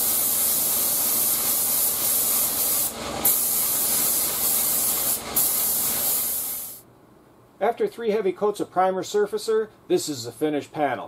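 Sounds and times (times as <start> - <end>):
spray gun hissing: 0.0 - 6.8.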